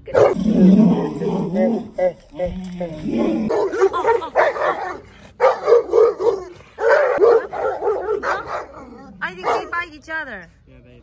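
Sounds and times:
dogs barking furiously: 0.1s - 0.4s, 3.5s - 10.0s.

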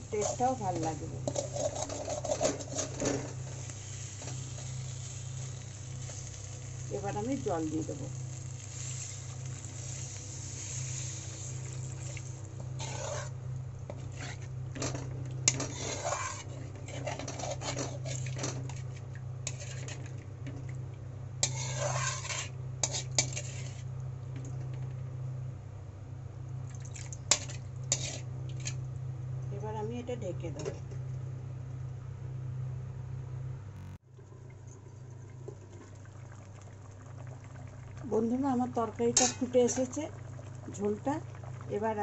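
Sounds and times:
steady low hum: 0.0s - 42.0s
metal spatula scraping a pan: 0.1s - 3.4s, 12.8s - 20.1s, 21.4s - 23.9s, 27.3s - 28.8s, 39.2s - 40.0s
water poured into a hot pan: 4.8s - 12.4s.

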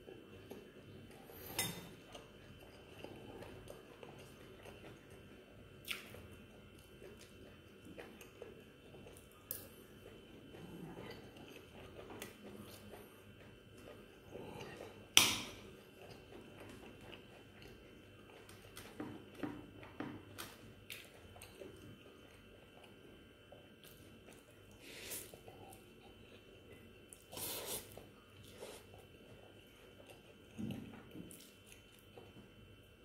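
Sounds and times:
person chewing noodles: 0.0s - 32.9s
cutlery clinking against ceramic bowl: 1.5s - 1.9s.

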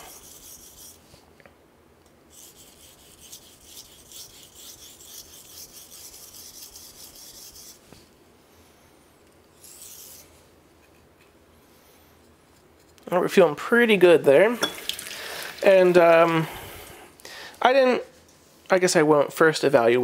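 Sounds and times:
knife scraping on whetstone: 0.0s - 1.0s, 2.3s - 7.8s, 9.6s - 11.1s.

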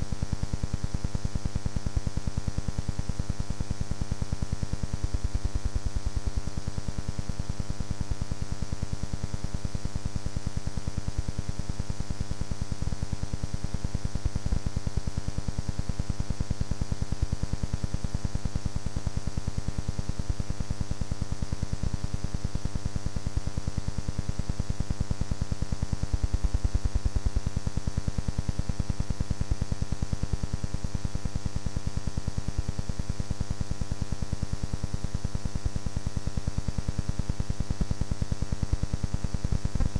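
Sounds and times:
electrical buzz and hum: 0.0s - 39.9s.

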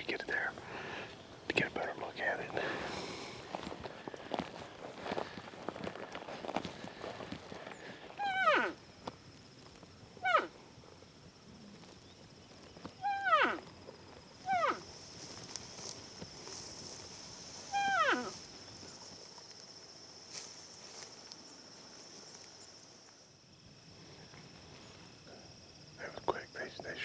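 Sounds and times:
elk calling: 8.2s - 8.8s, 10.2s - 10.6s, 13.0s - 13.7s, 14.4s - 14.9s, 17.6s - 18.4s.

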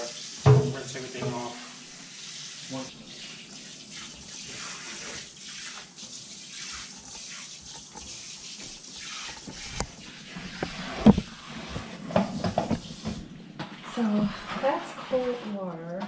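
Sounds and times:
faucet water splashing: 0.0s - 13.3s.

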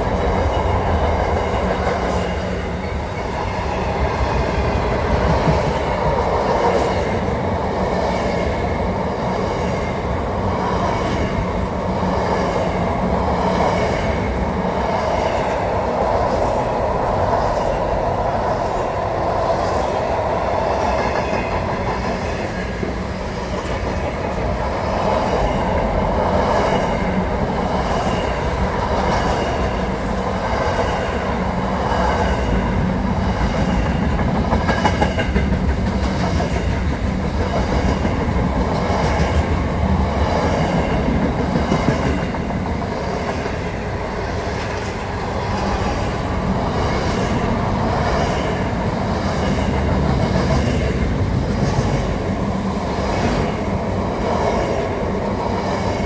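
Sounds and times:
freight train rumbling past: 0.0s - 56.0s
wheels clacking over rail joints: 32.4s - 53.7s.

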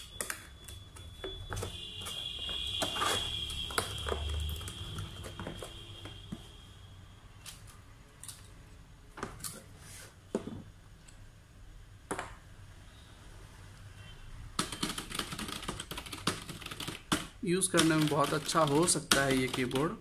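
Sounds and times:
fast keyboard typing: 14.6s - 20.0s.

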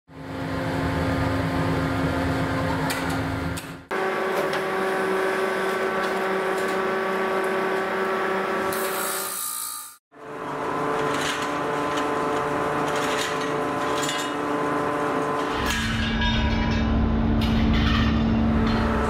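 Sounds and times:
machinery humming: 10.1s - 19.0s.

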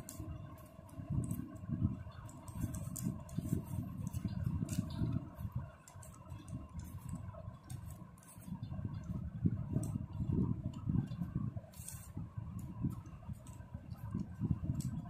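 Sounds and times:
faint steady hum: 0.0s - 15.0s
paper crinkling and rustling: 2.2s - 8.6s, 11.2s - 12.2s.

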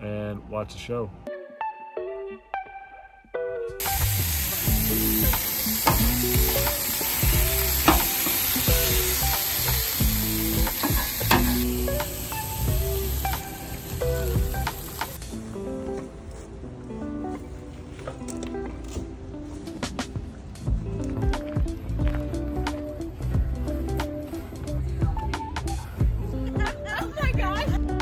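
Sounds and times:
meat sizzling in a pan: 3.8s - 15.2s.

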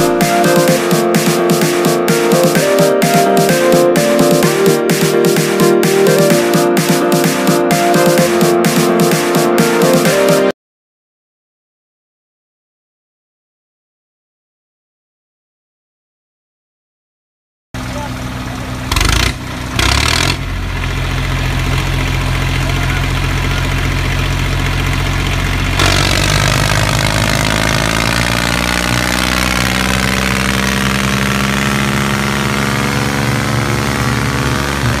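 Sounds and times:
engine running: 0.0s - 10.2s, 17.8s - 35.0s.

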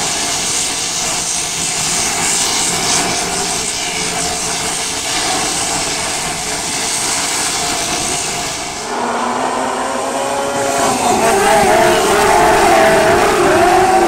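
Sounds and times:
race car engines roaring: 8.7s - 14.0s.

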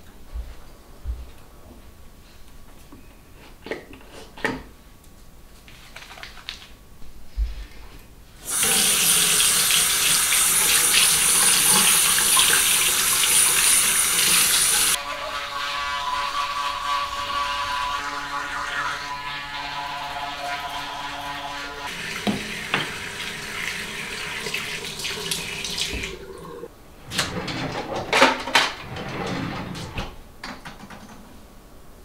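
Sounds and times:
water running into sink: 8.4s - 26.7s.

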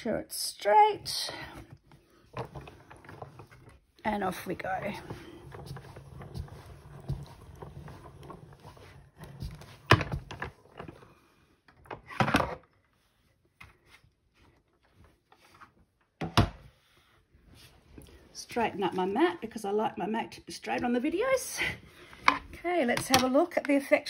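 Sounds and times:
plastic plates scraping: 1.2s - 11.2s
hand-cranked machine grinding rumble: 2.4s - 10.4s.

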